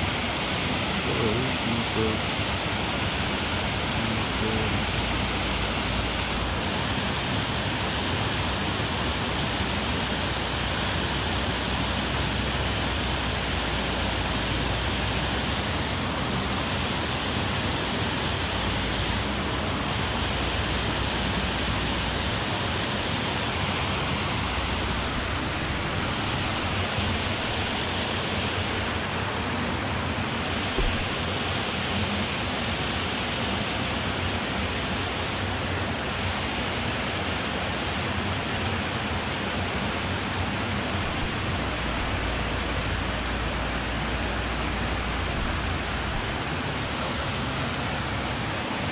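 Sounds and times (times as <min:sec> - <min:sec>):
water rushing over weir: 0:00.0 - 0:48.9
brief knock: 0:30.8 - 0:31.1.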